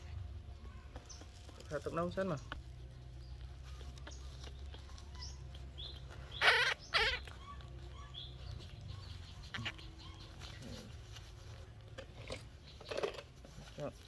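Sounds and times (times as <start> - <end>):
steady low hum: 0.0 - 14.0
baby monkey squealing: 3.6 - 11.0.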